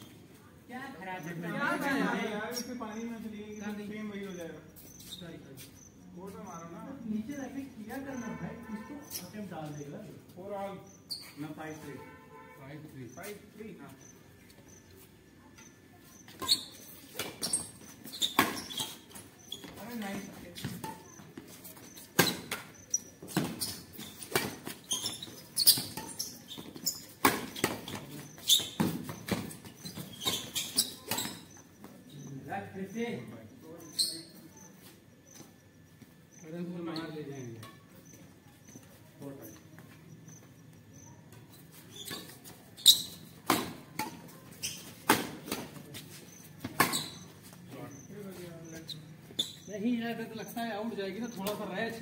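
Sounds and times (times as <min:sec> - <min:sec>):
racquets hitting shuttlecock: 0:22.1 - 0:31.5, 0:43.0 - 0:45.8.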